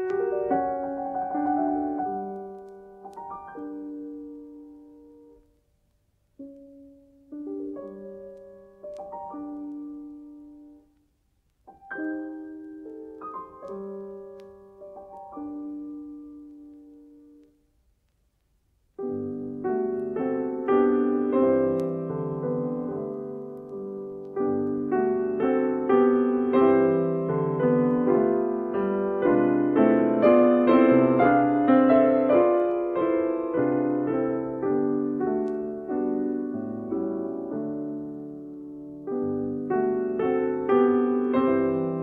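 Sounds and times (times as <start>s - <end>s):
solo classical piano: 0.0s - 42.0s.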